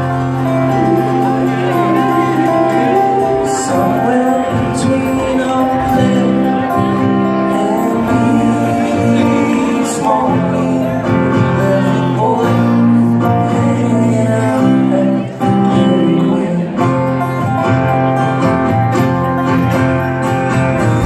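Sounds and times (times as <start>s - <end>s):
man singing: 0.0s - 17.6s
live band playing: 0.0s - 21.0s.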